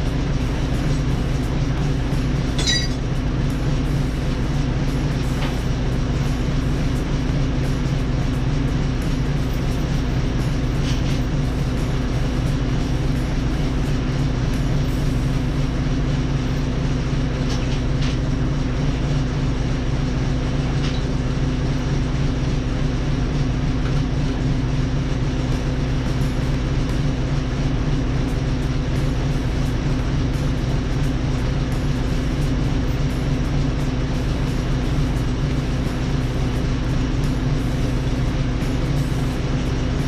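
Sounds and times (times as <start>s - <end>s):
engine running steadily: 0.0s - 40.0s.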